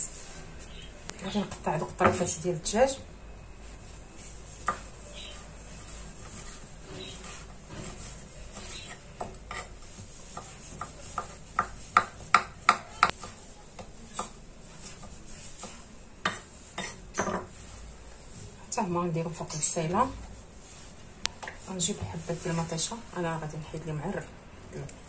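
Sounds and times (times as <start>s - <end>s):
knife chopping on wooden board: 10.3s - 14.4s, 15.6s - 17.5s.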